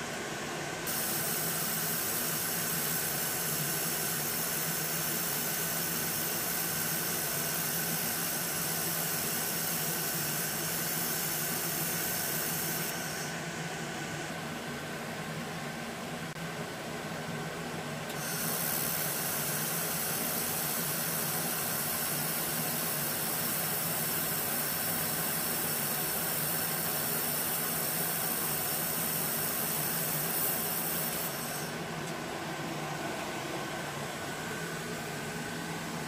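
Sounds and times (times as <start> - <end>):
welder fan humming: 0.0 - 36.0
laser welder high hiss: 0.8 - 14.3, 18.1 - 32.0.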